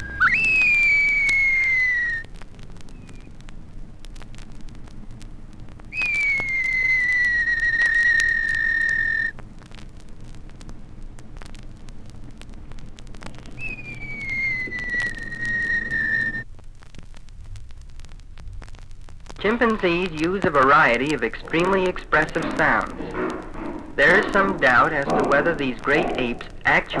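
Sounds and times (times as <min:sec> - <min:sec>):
chicks crying with falling whistles: 0:00.2 - 0:02.1, 0:13.6 - 0:16.4.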